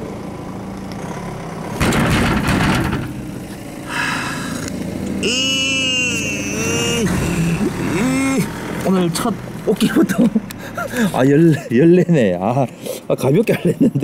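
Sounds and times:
electric hum: 0:01.8 - 0:08.9.

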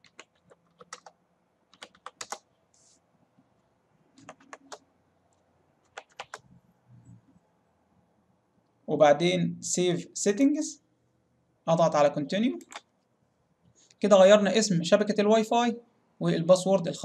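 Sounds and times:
computer keyboard typing: 0:00.0 - 0:02.5, 0:04.2 - 0:04.8, 0:05.8 - 0:06.5, 0:12.6 - 0:12.9.

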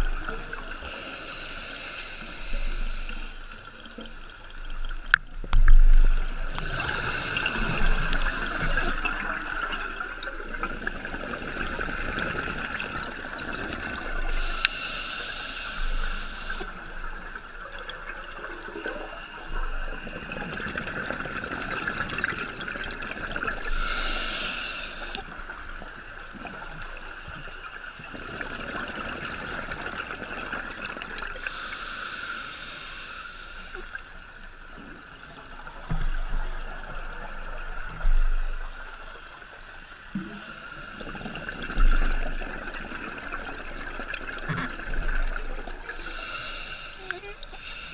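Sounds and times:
scuba regulator hiss: 0:00.8 - 0:03.4, 0:06.6 - 0:09.0, 0:14.3 - 0:16.7, 0:23.6 - 0:25.2, 0:31.4 - 0:33.9, 0:45.9 - 0:47.9
bubbling and gurgling: 0:02.4 - 0:31.6, 0:33.8 - 0:47.9.

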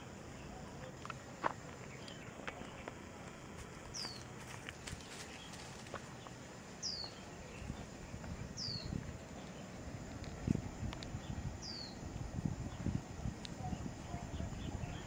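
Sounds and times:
leaf-litter rustling: 0:01.7 - 0:06.4
low thuds of footsteps: 0:07.5 - 0:11.6.

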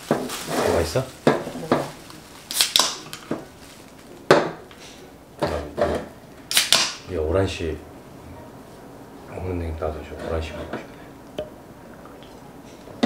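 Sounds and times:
bread crackling: 0:00.0 - 0:04.3.

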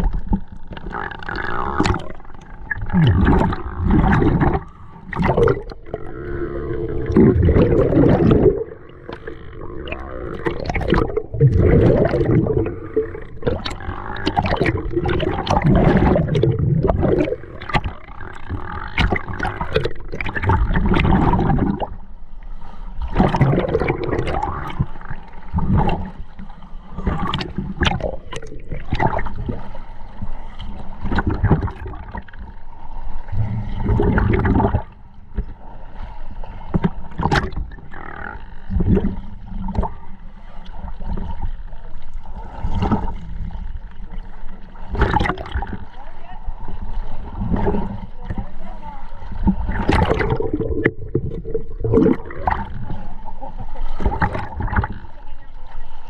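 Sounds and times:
sharp underwater clicks: 0:00.0 - 0:05.8, 0:13.4 - 0:21.8
underwater bubbles from regulator: 0:00.0 - 0:22.1, 0:23.0 - 0:32.6, 0:33.2 - 0:35.6, 0:36.7 - 0:46.0, 0:49.3 - 0:55.2.

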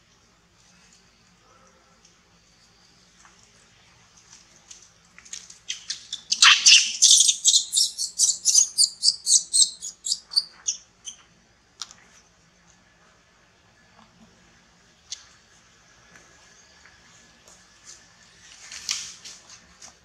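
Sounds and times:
monkey squealing: 0:06.2 - 0:10.8.

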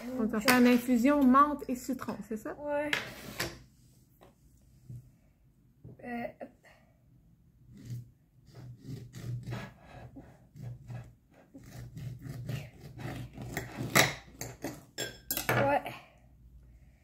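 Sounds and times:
knife sawing through lemon: 0:07.7 - 0:14.0.

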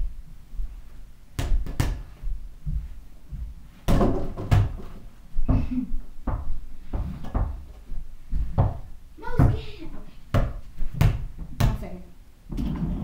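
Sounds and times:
small ball bouncing on floor: 0:01.4 - 0:02.0, 0:03.9 - 0:07.7, 0:08.4 - 0:09.7
ball knocking against hoop and door: 0:03.9 - 0:07.7, 0:08.4 - 0:09.6.

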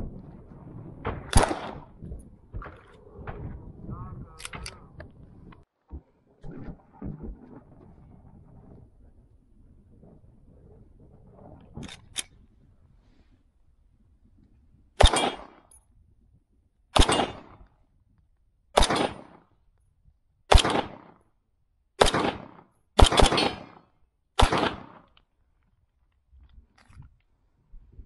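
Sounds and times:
echoing gunshots: 0:00.6 - 0:04.9, 0:15.0 - 0:15.6, 0:17.0 - 0:17.6, 0:18.8 - 0:19.4, 0:20.5 - 0:21.2, 0:22.0 - 0:25.1.

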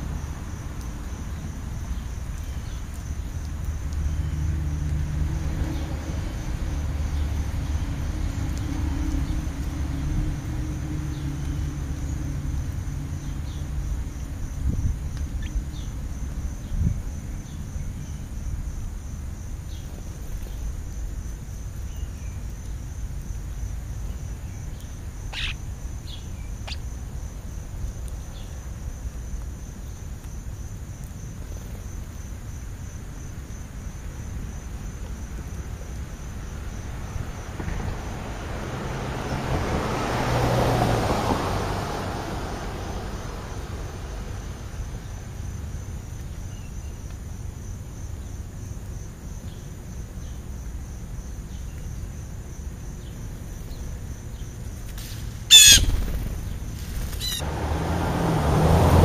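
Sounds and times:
low traffic rumble: 0:00.0 - 0:59.0
wind: 0:00.0 - 0:59.0
pulsing insect trill: 0:23.6 - 0:27.3, 0:42.8 - 0:57.5
bird chirps: 0:24.8 - 0:26.8, 0:55.5 - 0:57.4.

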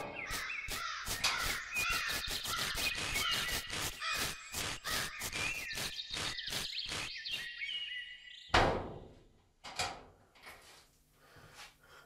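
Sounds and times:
rapid sharp taps: 0:00.0 - 0:05.9
creature chirping and squawking: 0:00.0 - 0:07.5.

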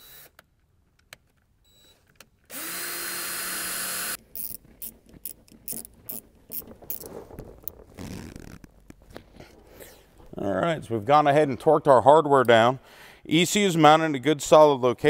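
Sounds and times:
cordless drill boring metal: 0:00.0 - 0:00.3, 0:02.5 - 0:04.9.

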